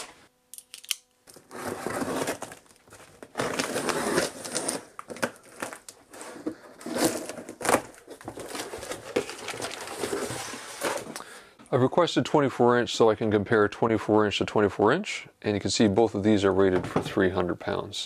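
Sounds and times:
cardboard rustling: 1.3s - 11.2s
wrapping crinkling and tearing: 1.3s - 11.2s.

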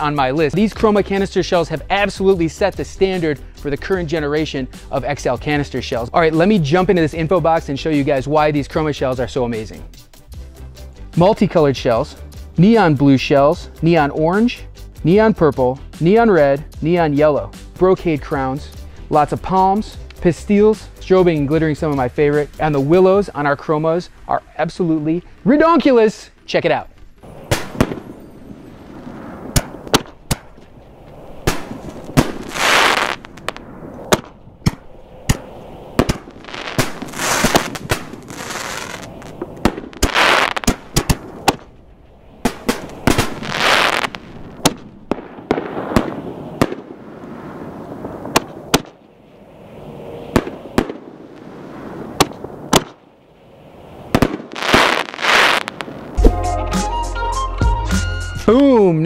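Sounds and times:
fireworks shells banging: 27.2s - 46.8s.

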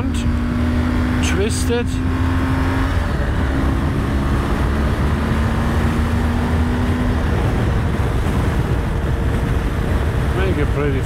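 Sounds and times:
motorcycle engine humming: 0.0s - 11.0s
road rumble: 0.0s - 11.0s
wind noise on microphone: 2.8s - 11.0s.

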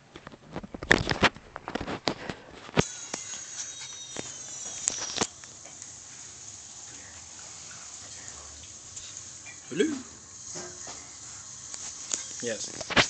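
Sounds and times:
steady hiss with high whine: 0.0s - 13.0s.

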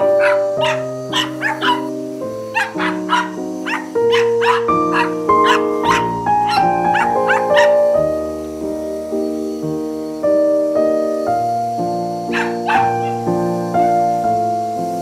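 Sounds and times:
small dogs yipping and barking: 0.0s - 8.1s, 12.2s - 14.0s
background music with held notes: 0.0s - 15.0s.

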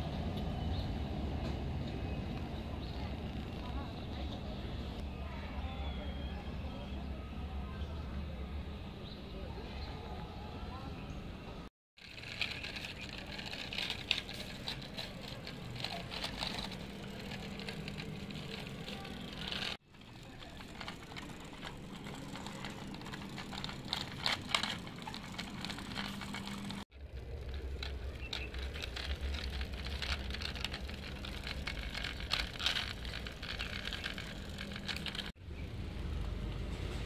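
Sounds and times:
toy wheels rolling on concrete: 1.5s - 5.2s, 12.0s - 37.0s
low steady rumble: 12.0s - 37.0s.

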